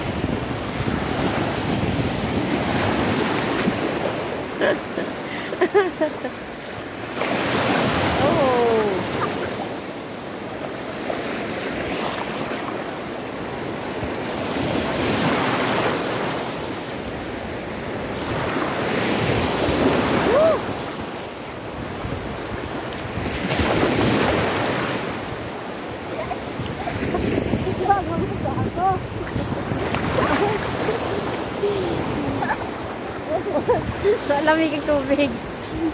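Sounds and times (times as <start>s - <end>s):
wind on microphone: 0.0s - 4.4s, 17.1s - 35.9s
ocean surf breaking: 0.0s - 35.9s.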